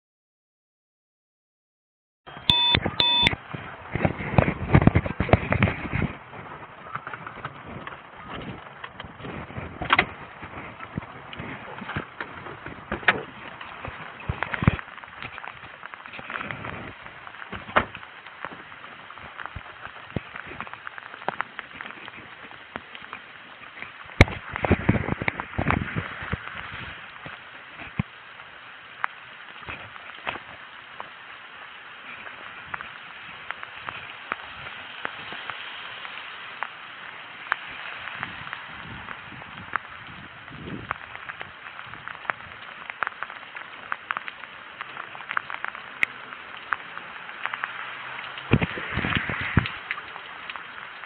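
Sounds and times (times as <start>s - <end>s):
rain hissing: 2.3s - 51.0s
rustling against microphone: 3.6s - 28.2s.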